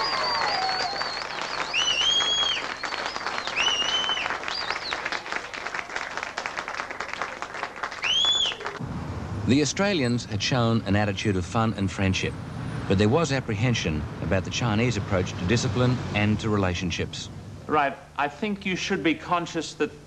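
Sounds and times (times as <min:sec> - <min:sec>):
high-pitched cheers: 0:00.0 - 0:05.2
crowd applauding: 0:00.0 - 0:08.8.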